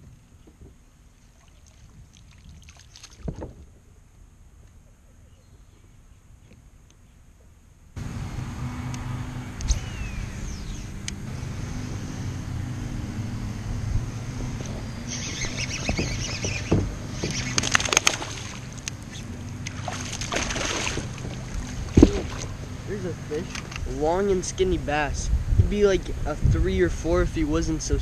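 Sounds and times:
fish splashing in water: 0:01.3 - 0:03.4, 0:15.2 - 0:22.8
steady low rumble: 0:03.5 - 0:28.0.

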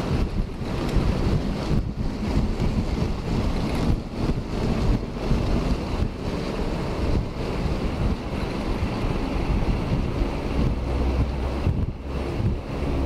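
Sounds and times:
skate wheels rolling on wet asphalt: 0:00.0 - 0:13.0
wind rushing over microphone: 0:00.0 - 0:13.0.

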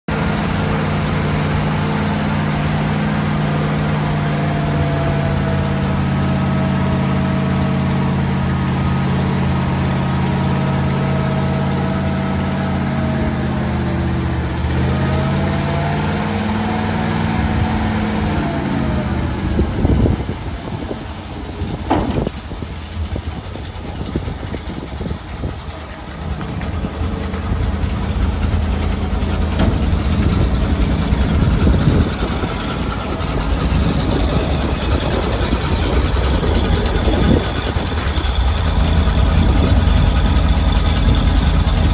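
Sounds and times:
truck engine running: 0:00.0 - 0:41.9
sharp clunks: 0:21.8 - 0:22.5.

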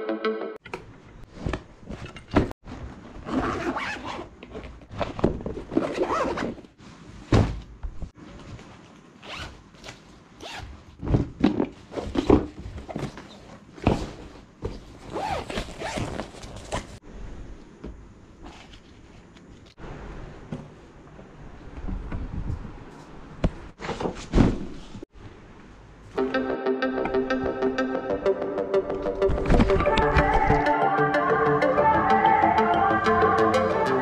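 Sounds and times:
rustling of gear: 0:11.9 - 0:17.0
zipper rasping: 0:15.1 - 0:16.9.

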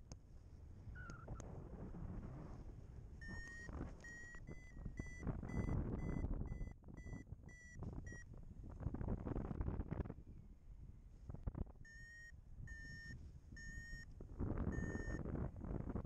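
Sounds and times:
variometer short beeps: 0:01.0 - 0:01.4, 0:03.2 - 0:08.3, 0:11.8 - 0:14.1, 0:14.7 - 0:15.2
wind on microphone: 0:07.8 - 0:10.4, 0:14.2 - 0:16.0.

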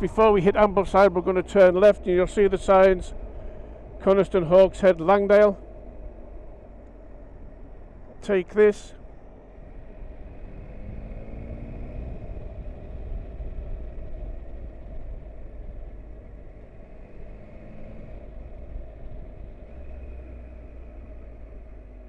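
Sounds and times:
motorcycle engine: 0:00.0 - 0:22.0
wind rumble on microphone: 0:09.0 - 0:22.0.

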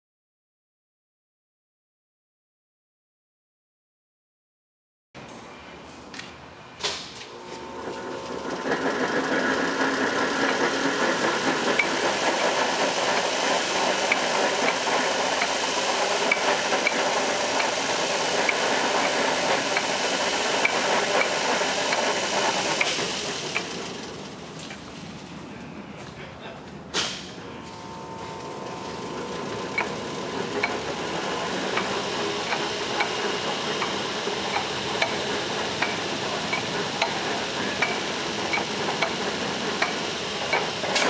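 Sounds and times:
lathe running with rattle: 0:07.2 - 0:25.3, 0:27.6 - 0:41.0.

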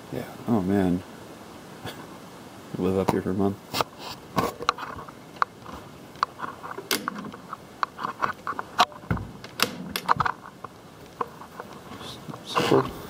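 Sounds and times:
cabinet door and latch clicks: 0:06.9 - 0:07.4, 0:09.1 - 0:10.2.

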